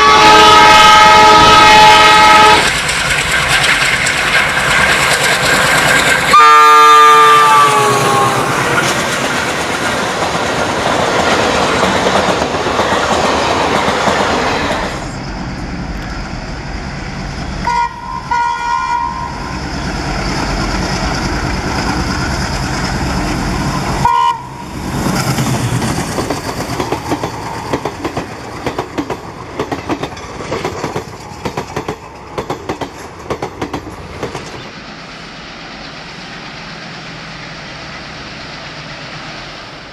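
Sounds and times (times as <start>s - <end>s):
train horn: 0.0s - 2.7s, 6.3s - 8.6s, 17.6s - 19.6s, 24.0s - 24.8s
locomotive passing rumble: 0.0s - 39.9s
train wheels clickety-clack: 2.4s - 15.1s, 19.7s - 24.2s, 24.8s - 34.7s.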